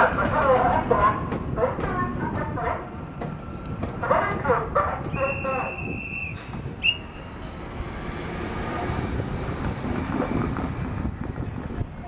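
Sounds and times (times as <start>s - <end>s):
high whistle tone: 5.2s - 7.2s.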